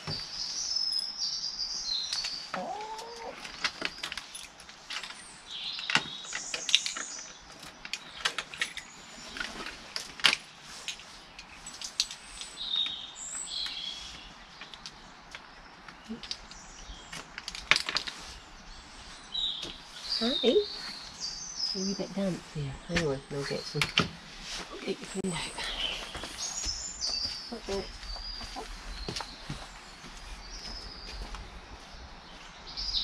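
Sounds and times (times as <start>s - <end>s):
poultry chirping and calling: 2.4s - 3.5s, 25.2s - 29.6s.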